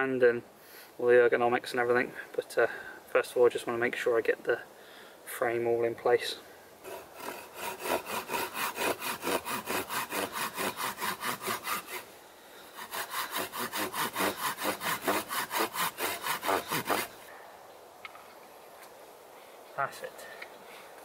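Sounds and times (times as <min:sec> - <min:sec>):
handsaw cutting wood: 0:06.8 - 0:12.1, 0:12.7 - 0:17.3.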